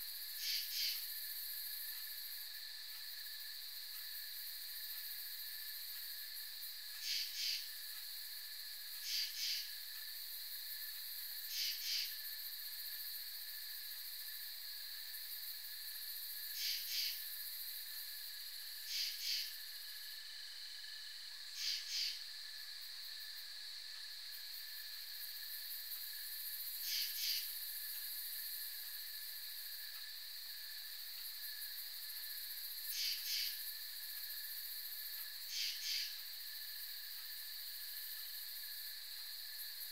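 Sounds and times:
raspy two-pulse insect call: 0.0s - 1.1s, 7.0s - 7.8s, 9.0s - 9.8s, 11.5s - 12.2s, 16.5s - 17.3s, 18.8s - 19.6s, 21.5s - 22.3s, 26.8s - 28.0s, 32.8s - 33.8s, 35.4s - 36.4s
high-pitched insect drone: 11.4s - 20.1s, 20.8s - 22.3s, 24.2s - 39.9s.

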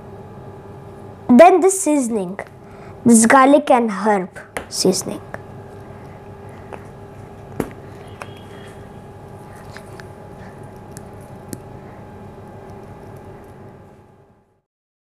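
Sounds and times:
steady background hum: 0.0s - 14.6s.

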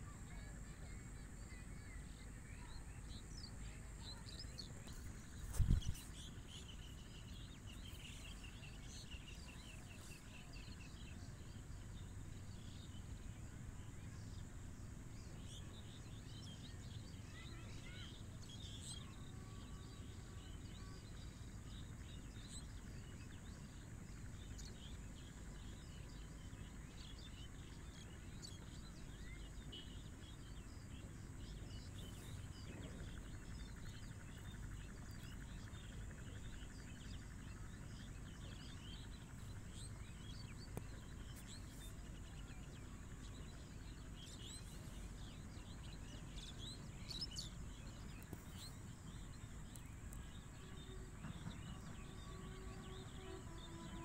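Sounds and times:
birds chirping: 0.0s - 54.0s.

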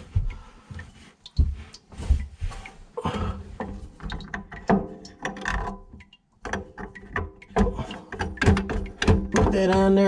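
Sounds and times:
plastic nuts clicking and rattling: 4.0s - 10.0s.

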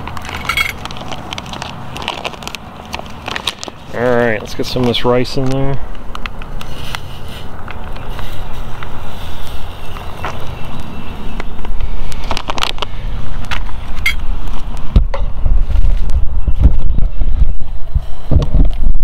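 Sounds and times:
light clicks and crackles: 0.0s - 3.8s
wind rumbling on microphone: 0.0s - 19.0s.

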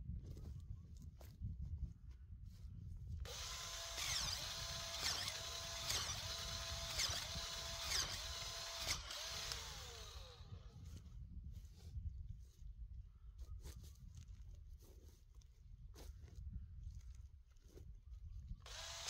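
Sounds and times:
electric auger drill boring soil: 3.2s - 11.1s, 18.6s - 19.0s.

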